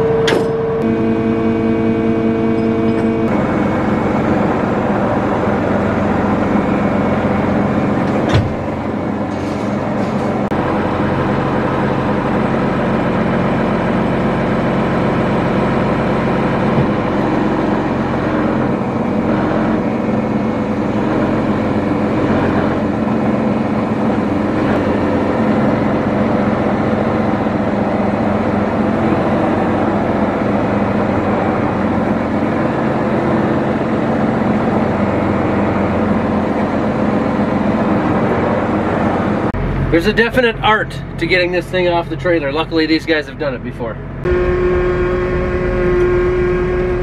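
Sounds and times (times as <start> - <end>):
heavy diesel engine running: 0.0 - 47.0.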